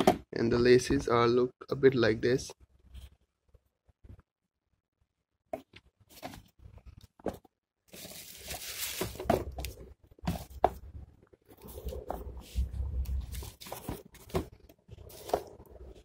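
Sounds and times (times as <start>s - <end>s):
tissue paper rustling: 7.9s - 9.6s.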